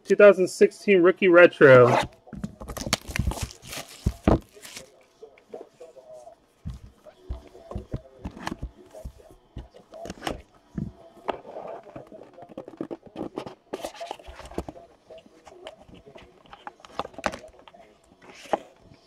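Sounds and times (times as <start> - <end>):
cardboard box taps and scrapes: 2.7 - 4.7.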